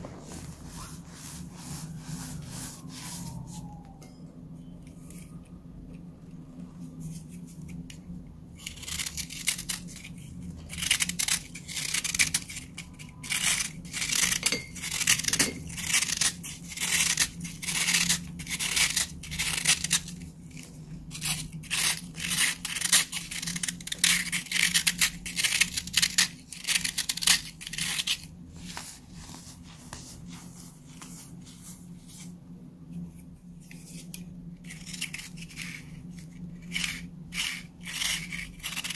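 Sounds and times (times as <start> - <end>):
knife scraping baking soda block: 8.6 - 20.2, 21.1 - 28.3, 36.5 - 38.9.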